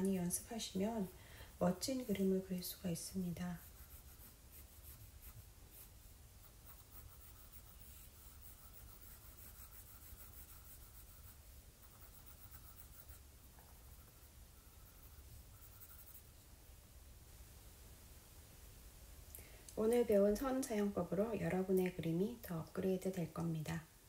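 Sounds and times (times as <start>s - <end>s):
pencil scratching on paper: 3.4s - 16.4s.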